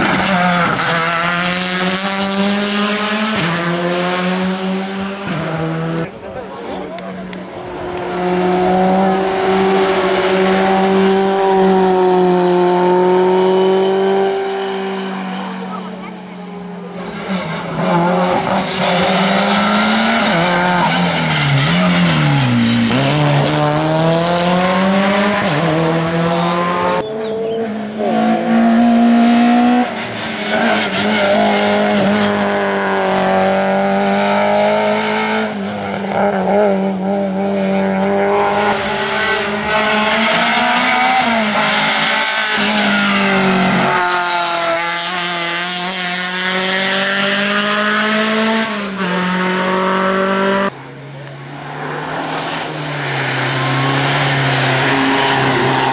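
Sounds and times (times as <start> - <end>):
race car engine revving: 0.0 - 55.9.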